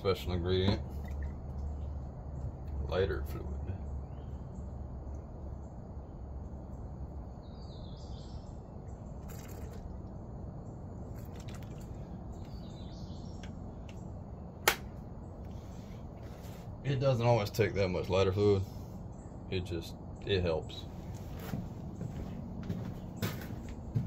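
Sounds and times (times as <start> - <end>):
faint bird chirps: 0.9 - 6.5, 7.1 - 14.5
sharp click: 14.6 - 14.9.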